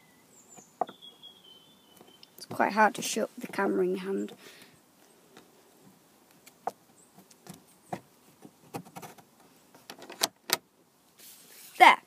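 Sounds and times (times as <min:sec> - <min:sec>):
latch clicking: 0:09.9 - 0:10.6.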